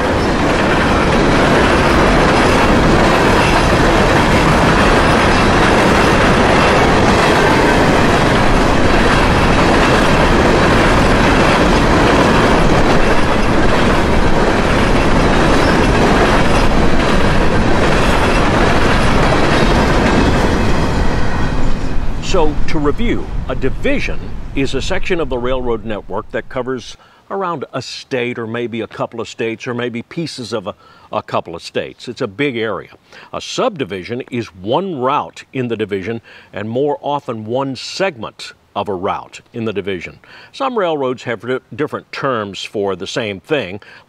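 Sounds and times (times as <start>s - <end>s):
train wheels rumbling and rattling: 0.0s - 27.0s.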